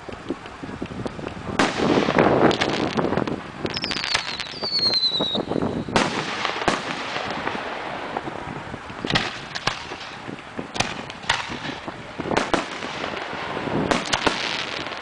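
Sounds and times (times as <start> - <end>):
firework crackle: 0.0 - 15.0
firework bangs: 1.2 - 15.0
firework whistle: 3.6 - 7.5.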